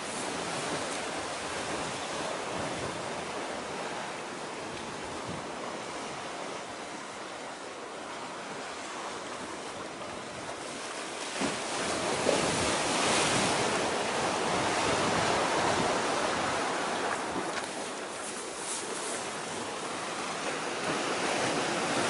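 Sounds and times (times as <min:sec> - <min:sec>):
wind on microphone: 0:00.0 - 0:06.3, 0:11.4 - 0:22.0
sea waves washing on shore: 0:00.0 - 0:22.0.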